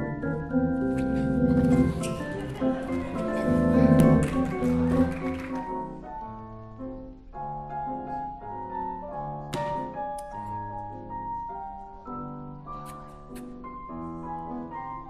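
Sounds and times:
sparse piano melody: 0:00.0 - 0:15.0.

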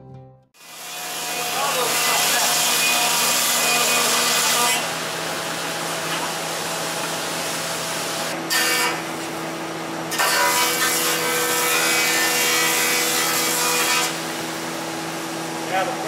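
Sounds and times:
board cut by planer: 0:00.6 - 0:07.2, 0:08.2 - 0:09.3, 0:10.1 - 0:14.4.

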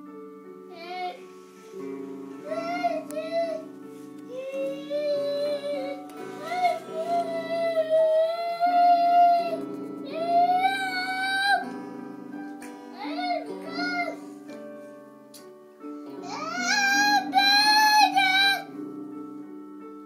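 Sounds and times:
child singing high notes: 0:00.7 - 0:01.2, 0:02.4 - 0:03.7, 0:04.3 - 0:11.7, 0:13.0 - 0:14.2, 0:16.2 - 0:18.7.

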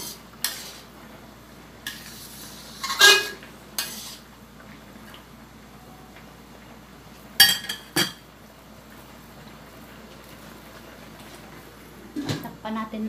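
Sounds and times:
metal utensil clanking on wok: 0:02.8 - 0:04.0.

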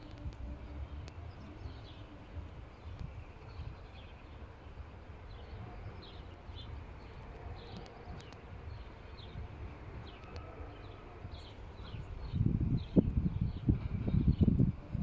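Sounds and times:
small birds chirping: 0:00.0 - 0:14.5.

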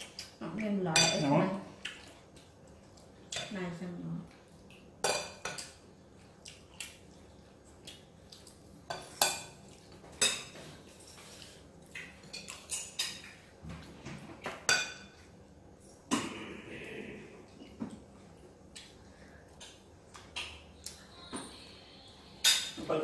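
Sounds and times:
cutlery clinking on ceramic plates: 0:14.4 - 0:15.2, 0:22.4 - 0:23.0.

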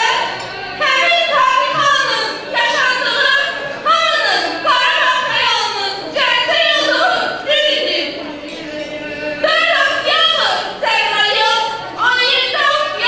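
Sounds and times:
faint music: 0:00.0 - 0:13.0.

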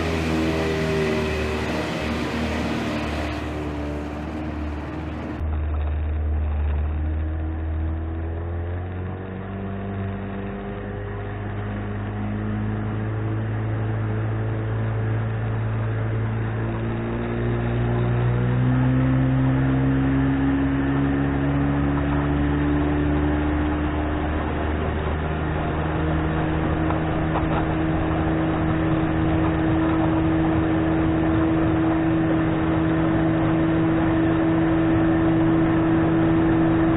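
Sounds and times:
outboard engine running: 0:19.4 - 0:36.9.

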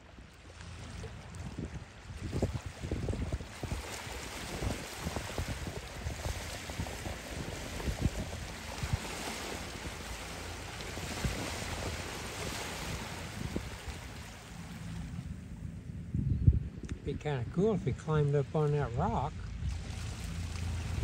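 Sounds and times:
wind buffeting microphone: 0:00.0 - 0:18.3, 0:19.0 - 0:21.0
waves washing over stony shore: 0:02.2 - 0:15.0.

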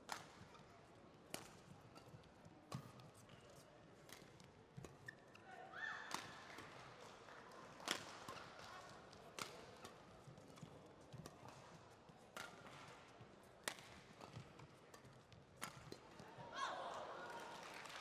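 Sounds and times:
rackets smacking shuttlecock: 0:01.3 - 0:03.4, 0:04.0 - 0:05.4, 0:06.1 - 0:06.9, 0:07.8 - 0:16.3.

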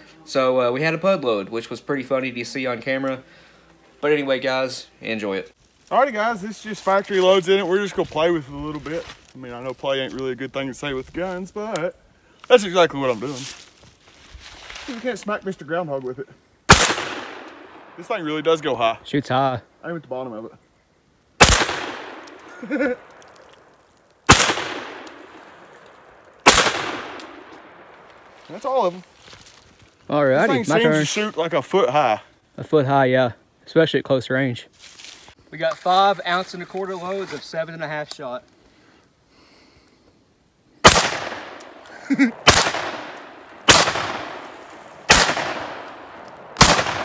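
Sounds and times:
shotgun shot echoing: 0:16.7 - 0:18.1, 0:21.4 - 0:22.4, 0:24.3 - 0:25.6, 0:26.4 - 0:28.0, 0:40.8 - 0:47.0.

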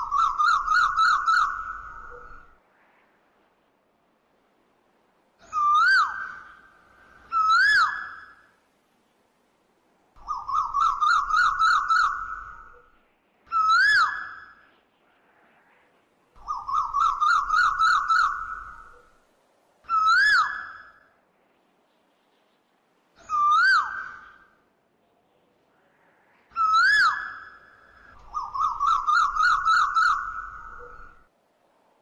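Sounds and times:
bird whistling and trilling: 0:00.0 - 0:02.4, 0:05.4 - 0:06.6, 0:07.3 - 0:08.4, 0:10.2 - 0:12.9, 0:13.5 - 0:14.6, 0:16.4 - 0:19.1, 0:19.9 - 0:21.0, 0:23.2 - 0:24.5, 0:26.6 - 0:31.3.

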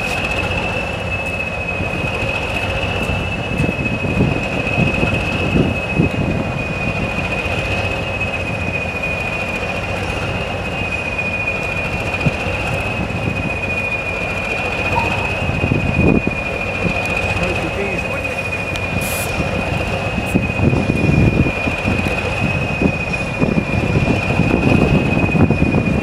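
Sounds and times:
diesel locomotive idling: 0:00.0 - 0:26.0
thin high whistle: 0:14.9 - 0:15.6.

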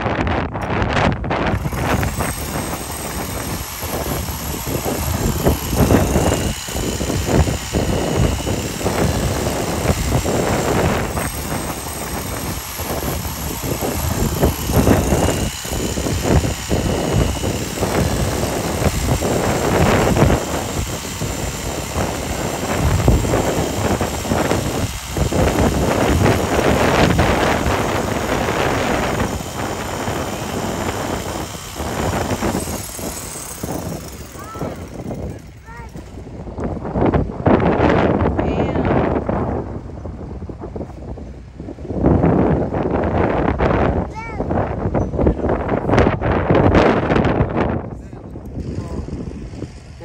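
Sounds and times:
power tool cutting horn: 0:01.4 - 0:36.1.

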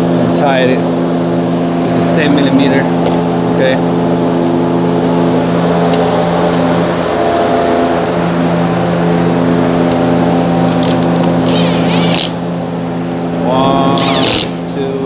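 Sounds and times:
steady mechanical drone: 0:00.0 - 0:15.0
ratchet clicking: 0:10.8 - 0:12.4.

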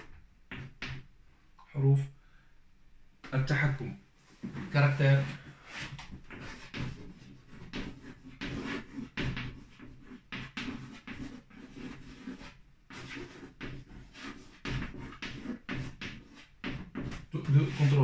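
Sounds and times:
chalk scratching on blackboard: 0:05.1 - 0:18.0.

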